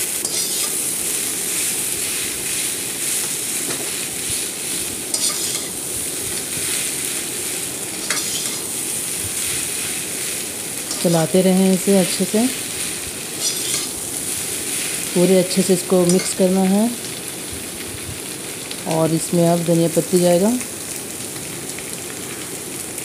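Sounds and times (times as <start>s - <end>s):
food sizzling in oil: 0.0s - 23.0s
metal spatula scraping pan: 0.2s - 0.8s, 5.1s - 6.8s, 7.9s - 8.8s, 13.4s - 14.0s, 16.0s - 16.4s.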